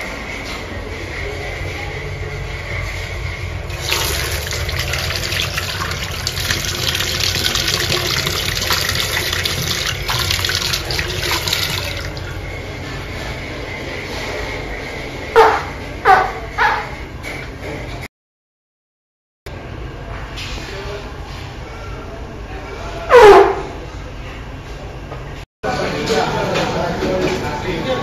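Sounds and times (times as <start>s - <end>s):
water running from a sink tap: 3.7s - 12.4s.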